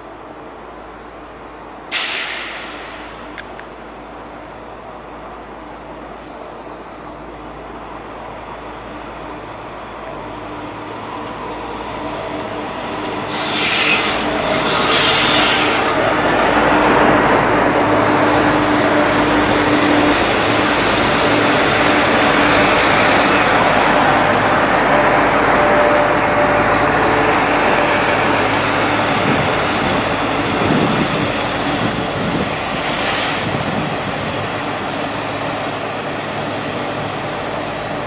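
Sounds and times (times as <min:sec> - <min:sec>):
train wheels rumbling on rail: 0:00.0 - 0:38.0
train hiss: 0:01.9 - 0:03.6, 0:13.2 - 0:16.3, 0:19.5 - 0:24.2, 0:32.4 - 0:35.9.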